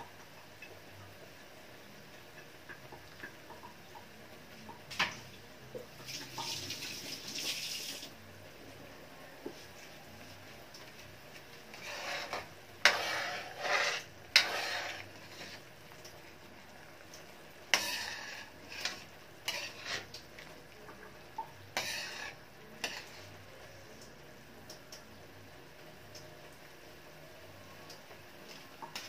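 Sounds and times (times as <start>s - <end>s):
metal ladle scraping wok: 11.7s - 15.7s, 17.7s - 20.5s, 21.7s - 23.4s.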